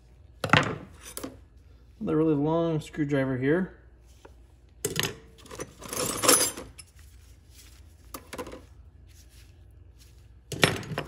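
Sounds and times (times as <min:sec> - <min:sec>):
metal tools clinking on wood: 0:05.4 - 0:06.9.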